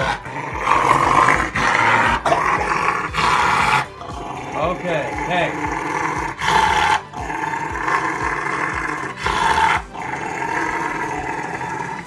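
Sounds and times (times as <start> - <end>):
dog growling: 0.0 - 12.0.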